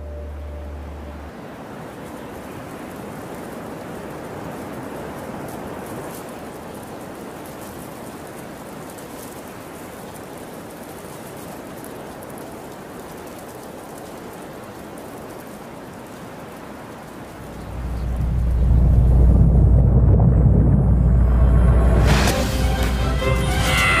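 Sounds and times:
wind and snow hiss: 0.0 - 20.3, 21.0 - 24.0
deep low rumble: 17.4 - 23.3.

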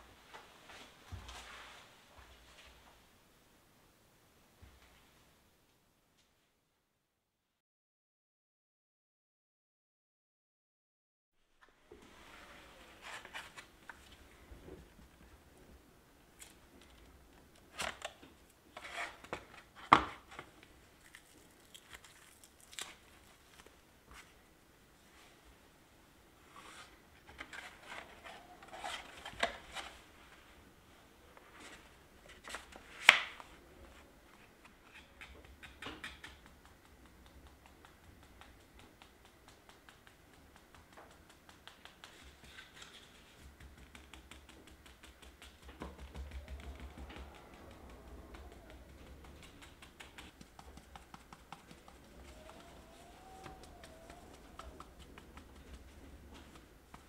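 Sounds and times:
light rapid clicking: 35.0 - 57.0.

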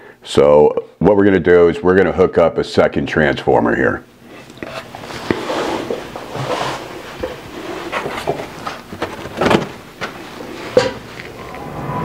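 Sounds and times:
objects being handled: 4.3 - 11.6.

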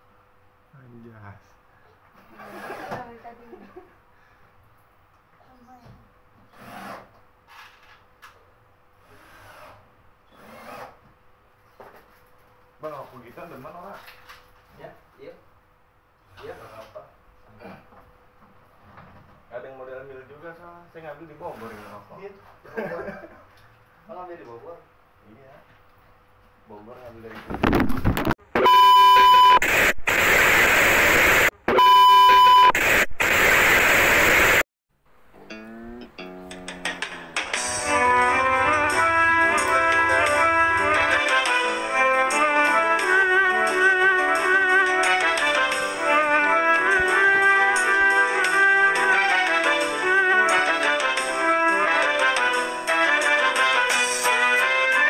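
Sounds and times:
loud static hiss: 27.4 - 34.6, 36.9 - 43.1
electronic beep: 28.6 - 29.6, 31.7 - 32.8.

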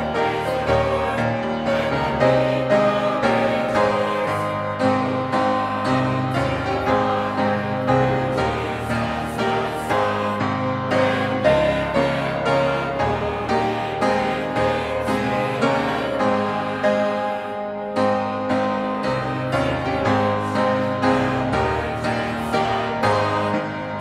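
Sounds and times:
congregation singing a hymn: 0.0 - 24.0
piano: 0.0 - 24.0.

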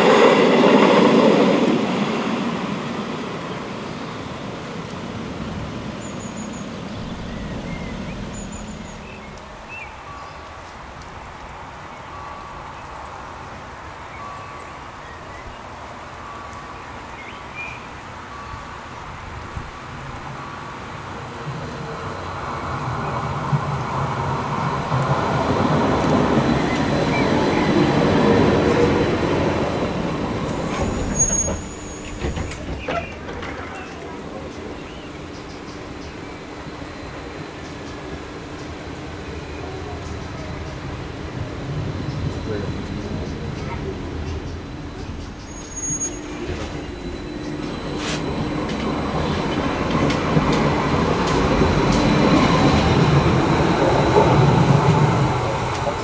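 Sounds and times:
tram rumbling: 0.0 - 56.0
birds chirping: 6.0 - 10.8
high squeal: 6.0 - 10.8, 26.4 - 34.0, 44.8 - 56.0.

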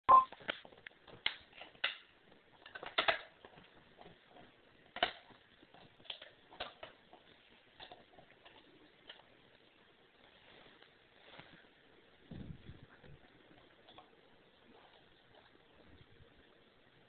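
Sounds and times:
dog gnawing bone: 0.5 - 9.8, 13.1 - 15.8.

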